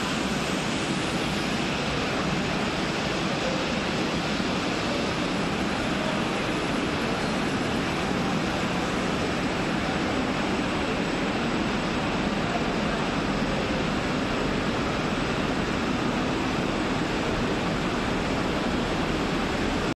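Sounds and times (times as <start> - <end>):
factory hall rushing noise: 0.0 - 19.9.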